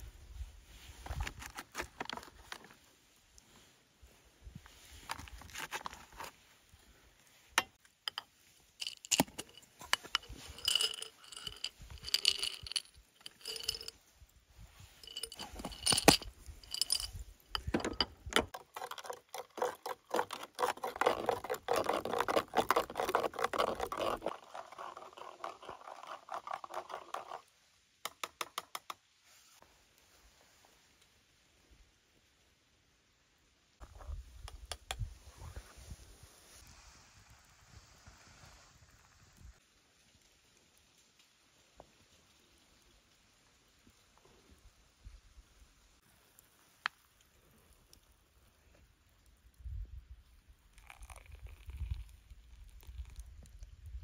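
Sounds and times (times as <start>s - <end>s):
spoon scraping inside pot: 8.8s - 13.9s, 15.0s - 27.4s.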